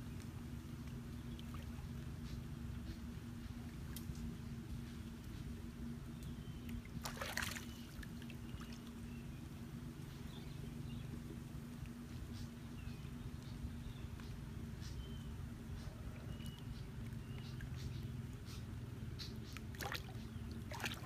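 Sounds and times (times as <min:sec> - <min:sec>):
steady low hum: 0:00.0 - 0:21.0
water sloshing and splashing: 0:06.7 - 0:09.2, 0:19.5 - 0:21.0.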